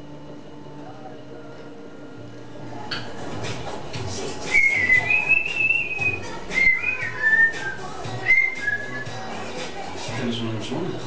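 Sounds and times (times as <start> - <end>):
parrot whistling: 4.4 - 9.3.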